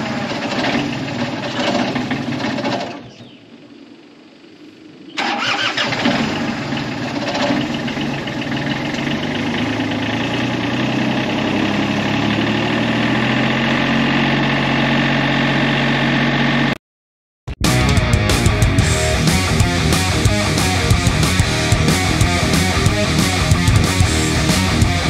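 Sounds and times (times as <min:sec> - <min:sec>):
excavator engine cranking: 0:00.0 - 0:03.2, 0:05.2 - 0:16.7
excavator engine idling: 0:00.0 - 0:16.8, 0:17.7 - 0:25.0.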